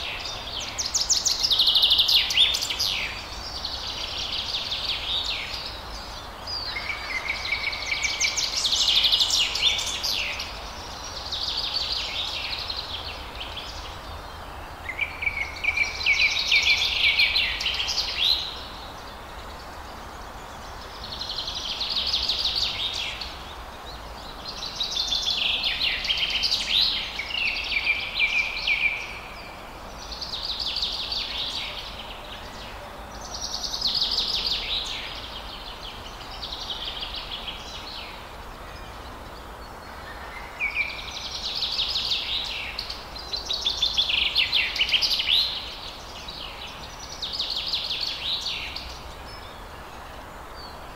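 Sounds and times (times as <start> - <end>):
faint outdoor hiss: 0.0 - 50.9.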